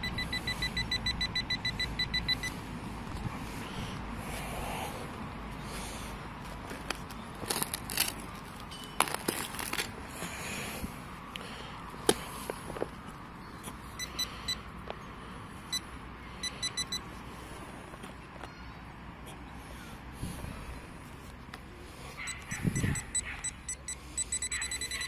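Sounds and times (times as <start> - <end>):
metal detector beeping: 0.0 - 2.7, 14.0 - 14.6, 15.7 - 17.1, 22.3 - 25.0.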